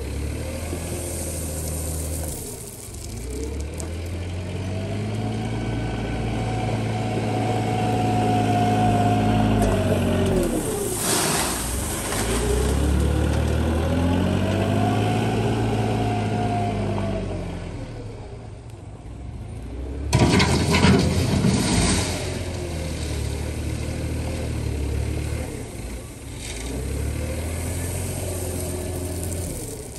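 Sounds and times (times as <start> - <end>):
loader engine revving: 0.0 - 18.1, 19.7 - 29.9
gravel pouring from bucket: 0.1 - 4.2, 10.4 - 13.1, 20.2 - 23.6, 26.6 - 29.9
bucket crunching into gravel: 0.6 - 4.1, 10.6 - 13.0, 20.2 - 23.3, 27.4 - 29.9.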